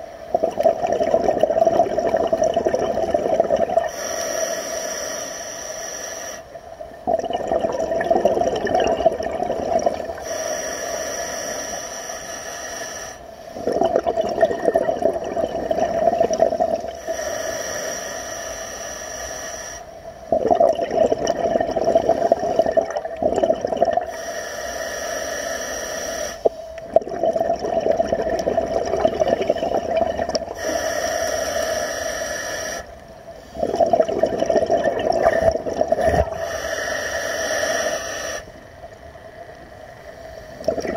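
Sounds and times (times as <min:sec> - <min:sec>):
exhaust bubbles rushing: 0:00.3 - 0:03.9, 0:07.0 - 0:10.2, 0:13.6 - 0:16.9, 0:20.3 - 0:24.1, 0:26.9 - 0:30.6, 0:33.6 - 0:36.4, 0:40.6 - 0:40.9
regulator inhale hiss: 0:03.8 - 0:06.7, 0:10.1 - 0:13.6, 0:16.8 - 0:20.3, 0:24.0 - 0:26.8, 0:30.4 - 0:33.7, 0:35.3 - 0:38.7.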